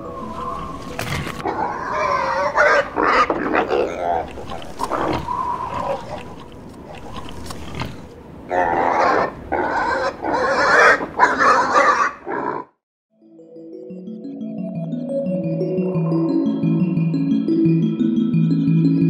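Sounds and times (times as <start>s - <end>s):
pig grunting and oinking: 0.0s - 12.7s.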